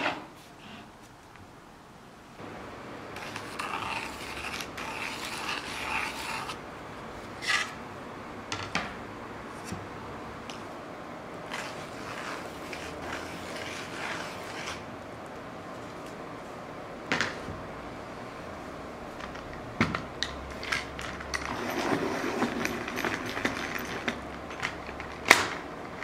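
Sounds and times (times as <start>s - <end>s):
tools scratching on wood: 3.2s - 6.6s, 7.3s - 7.8s, 11.5s - 14.9s.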